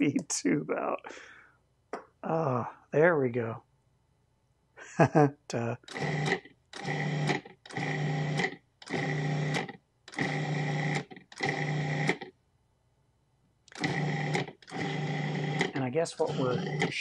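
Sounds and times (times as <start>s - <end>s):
food processor motor pulsing: 5.8s - 12.3s, 13.7s - 17.0s.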